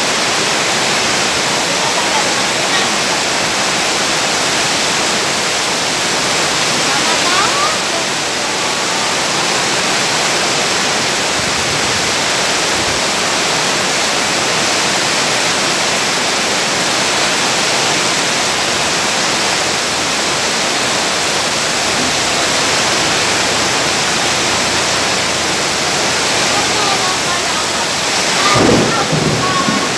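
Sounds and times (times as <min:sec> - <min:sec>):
heavy rain: 0:00.0 - 0:29.9.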